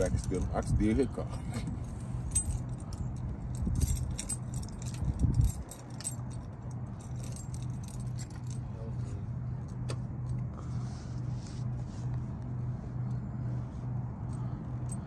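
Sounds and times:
low vehicle hum: 0.0s - 15.0s
keys jingling: 1.5s - 8.7s.

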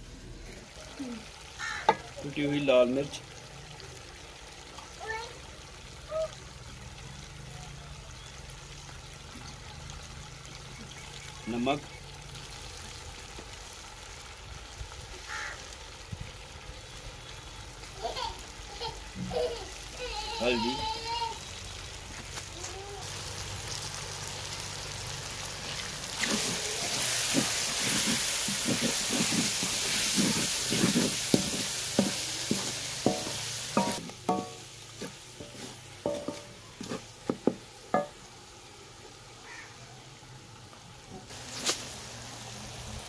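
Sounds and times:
masala sizzling in oil: 0.0s - 43.0s
wooden spoon scraping pot: 26.2s - 38.1s
sharp knocks on metal pot: 33.1s - 34.6s, 36.1s - 36.5s, 37.3s - 38.2s.

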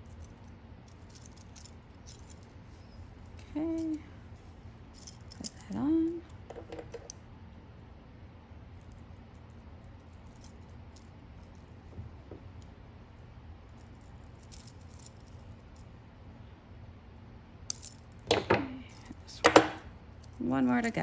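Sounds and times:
metal rings clinking together: 17.7s - 21.0s
pliers clicking on metal rings: 17.7s - 21.0s.

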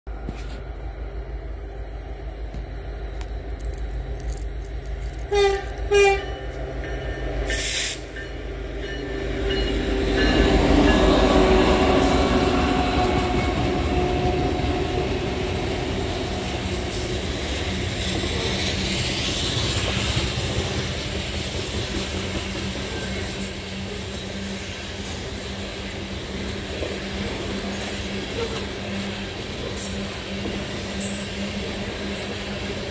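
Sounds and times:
diesel locomotive passing: 0.1s - 32.9s
train wheels on rails: 0.1s - 32.9s
short train horn blasts: 5.3s - 6.6s.

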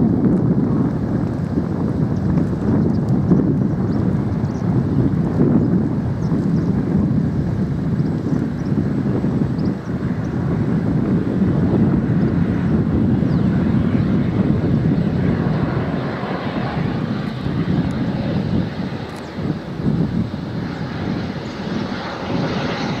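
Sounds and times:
turboprop engines droning: 0.0s - 23.0s
high engine whine: 7.6s - 23.0s.

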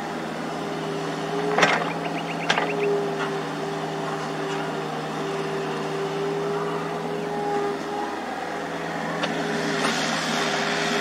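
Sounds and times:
excavator diesel engines: 0.0s - 11.0s.

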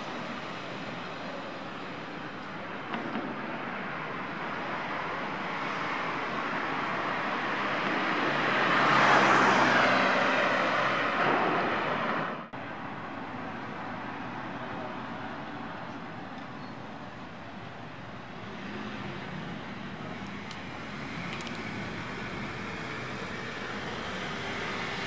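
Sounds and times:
street background noise: 0.0s - 25.0s
vehicle passing: 8.1s - 12.5s.

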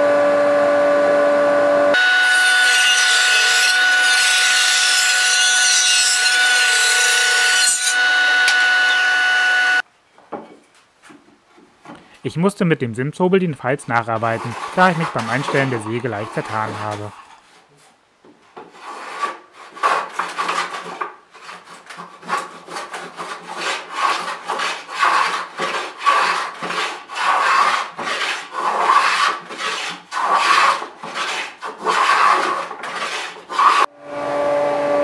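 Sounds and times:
table saw motor running: 0.0s - 9.8s
hand plane rasping on wood: 14.2s - 17.1s, 18.6s - 33.9s.

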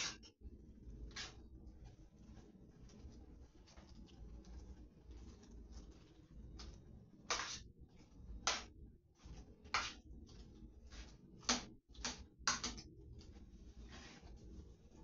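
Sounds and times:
hands scratching food in a pan: 0.0s - 15.0s.

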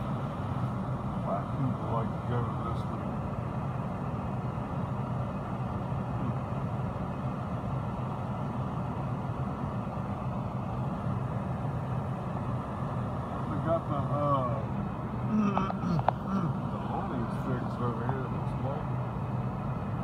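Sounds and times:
car cabin rumble: 15.3s - 18.9s.

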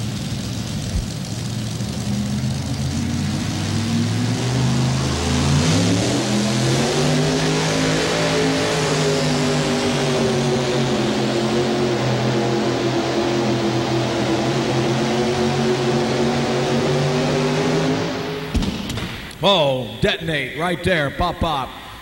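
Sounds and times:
tractor engine revving: 0.0s - 22.0s.

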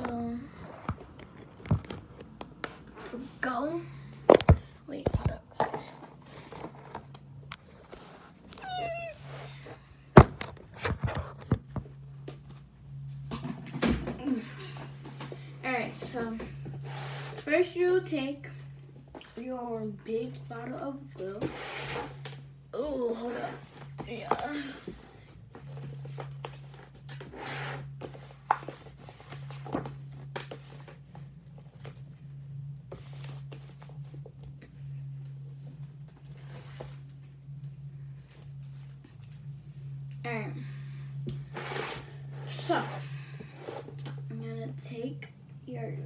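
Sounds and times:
steady low hum: 0.0s - 46.0s
cat meowing: 8.6s - 9.3s.

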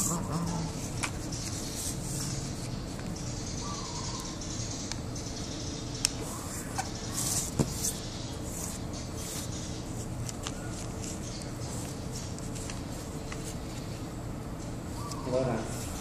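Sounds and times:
paper rustling and crinkling: 8.7s - 14.0s.

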